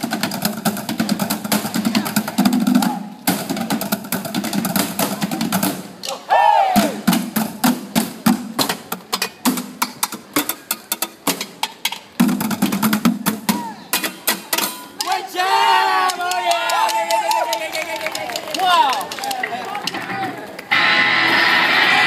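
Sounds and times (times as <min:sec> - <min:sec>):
drums and metal pans beating: 0:00.0 - 0:06.1, 0:06.7 - 0:15.2
person shouting: 0:06.1 - 0:07.0, 0:13.5 - 0:13.9, 0:15.0 - 0:18.1.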